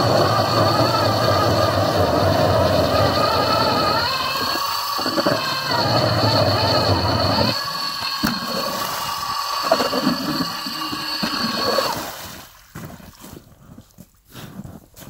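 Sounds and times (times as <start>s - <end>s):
electric ice auger whining: 0.0s - 12.4s.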